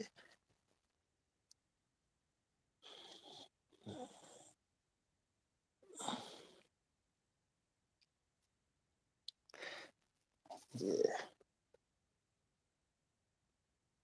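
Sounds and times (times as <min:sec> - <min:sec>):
person breathing out wheezily: 0:09.6 - 0:10.0.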